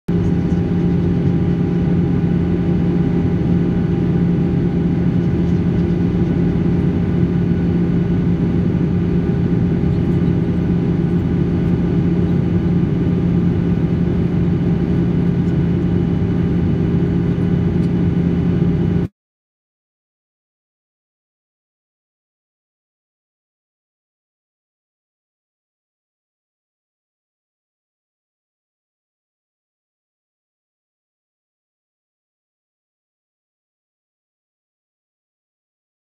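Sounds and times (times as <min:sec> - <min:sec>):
jet engine cabin drone: 0:00.1 - 0:19.1.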